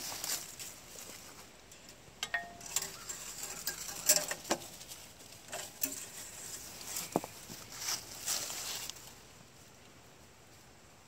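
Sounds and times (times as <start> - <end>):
dipstick metallic clicks and scrapes: 1.7 - 4.8, 5.4 - 7.3.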